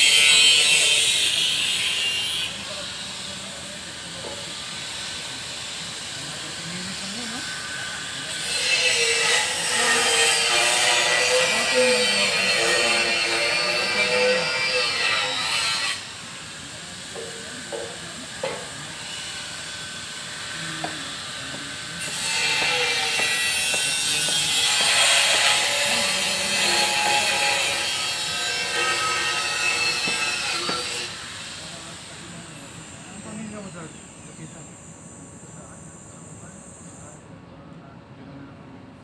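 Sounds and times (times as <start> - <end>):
power tool whining on steel: 0.0 - 37.2.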